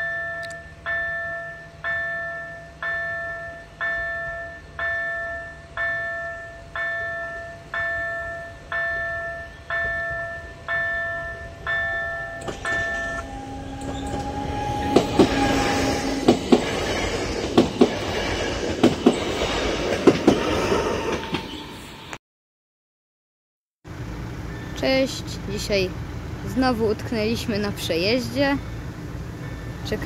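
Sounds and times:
level crossing warning bell: 0.0s - 16.4s
held warning tone: 0.0s - 17.9s
train rushing past: 9.7s - 22.1s
wheels clacking over rail joints: 10.7s - 21.6s.

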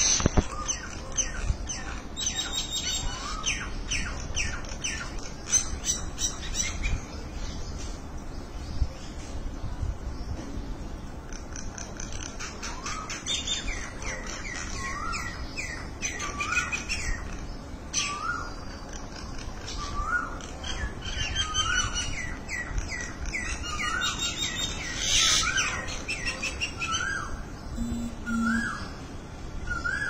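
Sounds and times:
mynas chirping and whistling: 23.8s - 29.0s.

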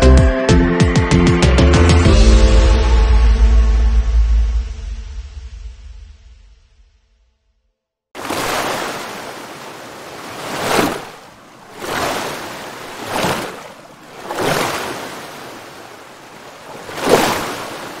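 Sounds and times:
ocean waves washing in: 8.2s - 18.0s.

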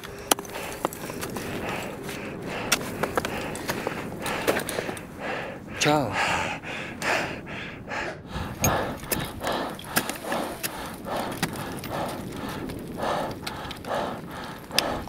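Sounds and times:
ice axes and crampons clicking: 0.0s - 5.1s, 8.5s - 15.0s
person panting hard: 0.0s - 15.0s.

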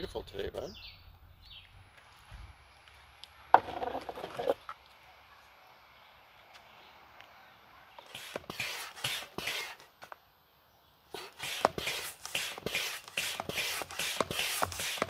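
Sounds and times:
hand air pump strokes: 8.0s - 9.9s, 11.1s - 15.0s.

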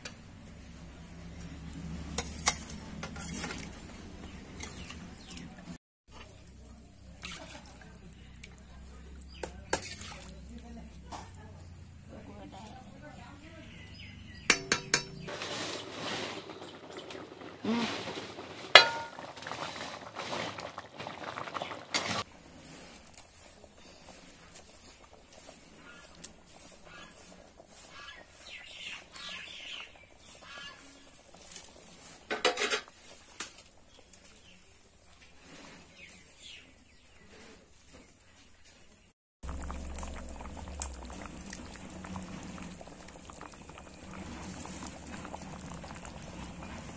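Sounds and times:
curry bubbling and popping: 2.2s - 12.7s, 18.3s - 35.3s, 39.4s - 46.9s
cooking hiss: 39.4s - 46.9s.

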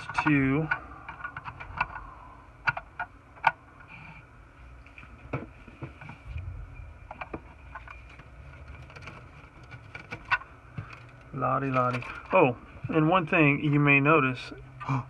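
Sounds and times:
plastic parts clicking and tapping: 0.0s - 3.6s, 7.1s - 12.4s.

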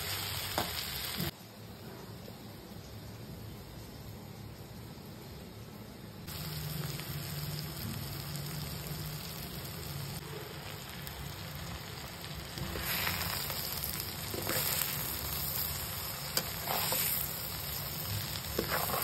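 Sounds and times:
food sizzling in a pan: 0.0s - 1.4s, 6.2s - 19.0s.

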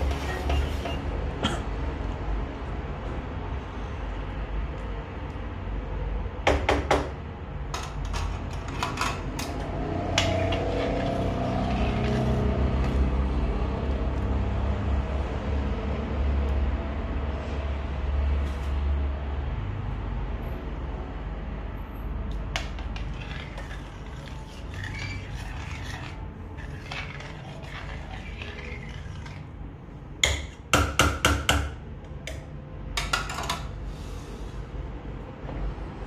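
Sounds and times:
cookware clinking and scraping: 0.0s - 1.0s, 22.7s - 29.5s.

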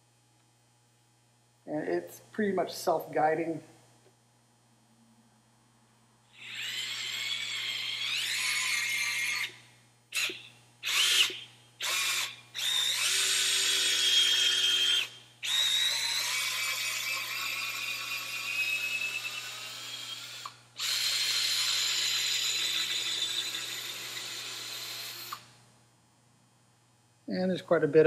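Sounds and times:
cordless drill whining: 6.3s - 25.5s.

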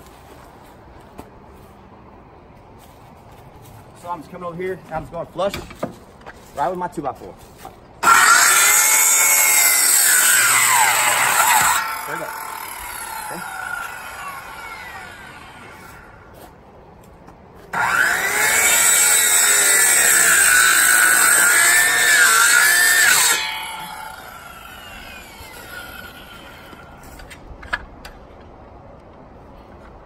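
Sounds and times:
circular saw cutting wood: 8.0s - 16.3s, 17.7s - 27.3s.

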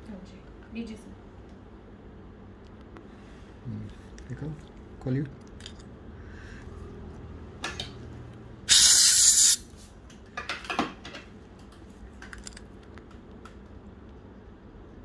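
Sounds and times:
air syringe hissing blast: 8.7s - 9.7s.

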